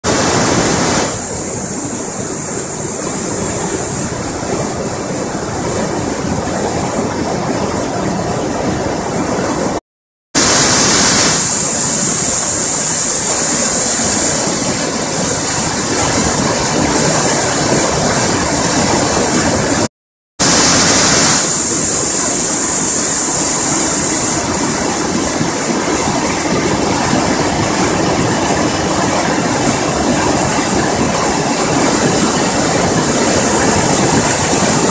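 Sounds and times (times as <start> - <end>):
river rushing in flood: 0.0 - 9.8, 10.4 - 34.9.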